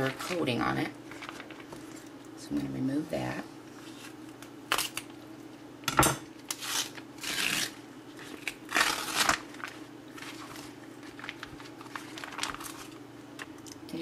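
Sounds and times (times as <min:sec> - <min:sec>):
plastic wrapping crinkling: 0:00.0 - 0:02.2, 0:08.2 - 0:13.8.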